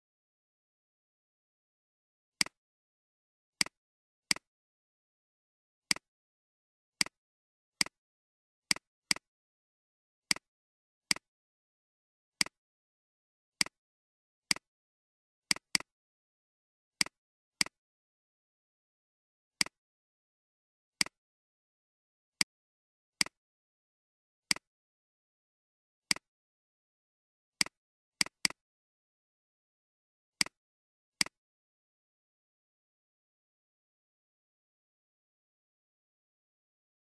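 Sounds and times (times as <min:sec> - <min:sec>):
computer mouse clicks: 0:03.6 - 0:04.5, 0:15.5 - 0:15.9, 0:27.6 - 0:28.6, 0:30.4 - 0:30.6.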